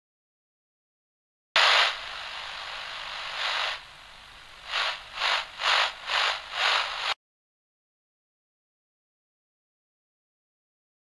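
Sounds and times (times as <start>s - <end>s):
static hiss: 1.6s - 7.2s.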